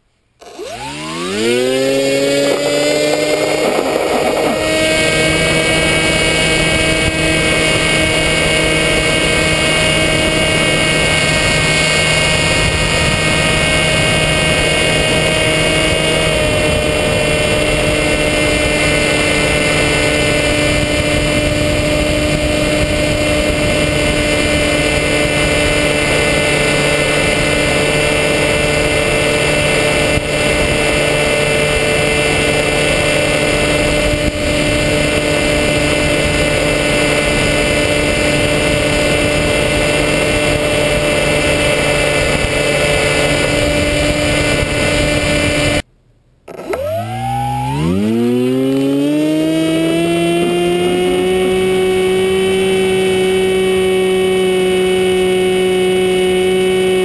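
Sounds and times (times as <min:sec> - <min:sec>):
electric motor propeller whine: 0:00.0 - 0:45.9, 0:46.5 - 0:57.0
wind rush: 0:01.2 - 0:45.8.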